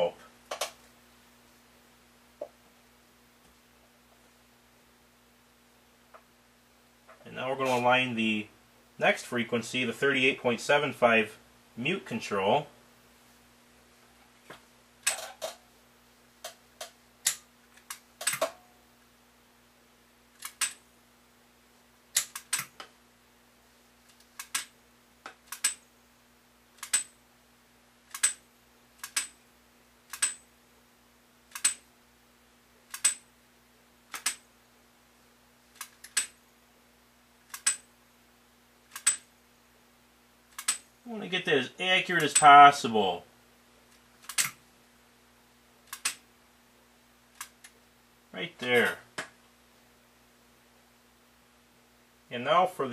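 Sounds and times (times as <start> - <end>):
faint steady hum: 0.0 - 52.9.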